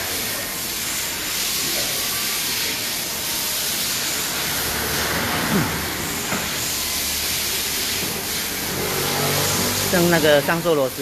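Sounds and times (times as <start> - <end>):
workshop background hiss: 0.0 - 11.0.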